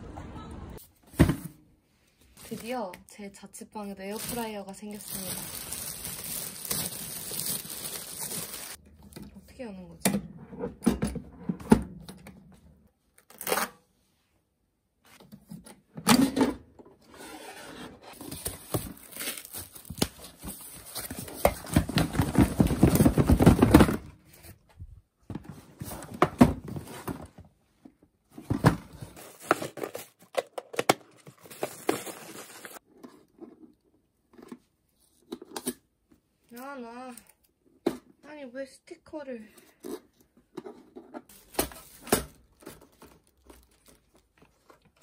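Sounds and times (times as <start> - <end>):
cardboard and plastic tearing: 4.2 - 8.8, 18.1 - 24.0, 29.0 - 32.8.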